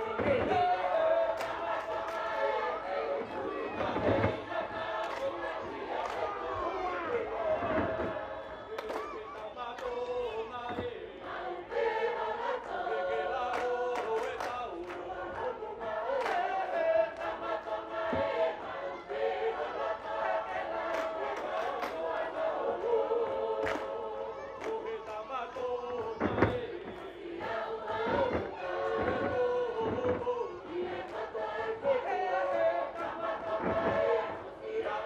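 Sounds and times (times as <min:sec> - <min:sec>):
group singing in parts: 0:00.0 - 0:35.0
hand claps: 0:01.3 - 0:02.5, 0:05.0 - 0:06.4, 0:07.8 - 0:10.9, 0:13.5 - 0:15.5, 0:16.2 - 0:18.3, 0:20.9 - 0:22.2, 0:23.6 - 0:24.0, 0:24.6 - 0:27.5.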